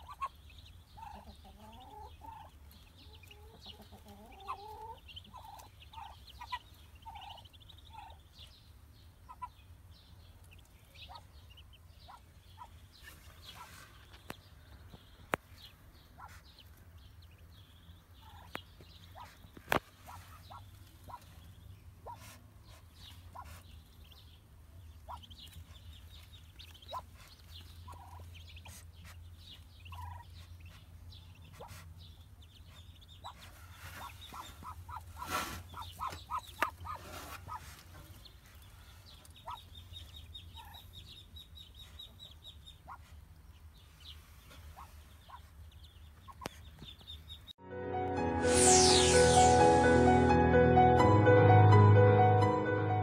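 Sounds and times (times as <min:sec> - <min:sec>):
ducklings peeping: 0:00.0 - 0:47.6.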